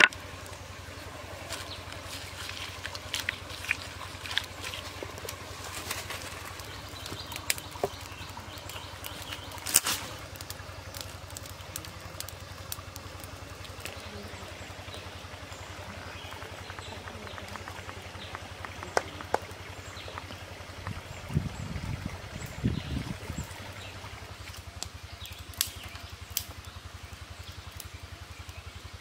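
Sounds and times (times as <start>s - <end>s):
steady low rumble: 0.0s - 29.0s
wood fire crackling and popping: 0.0s - 29.0s
sharp snaps: 24.8s - 26.7s.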